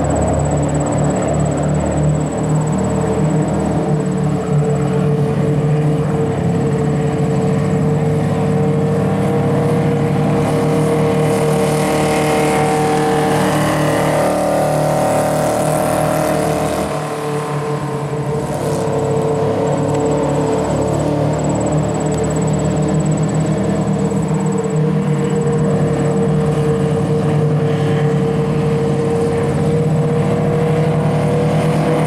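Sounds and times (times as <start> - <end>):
race car engine running: 0.0 - 32.0.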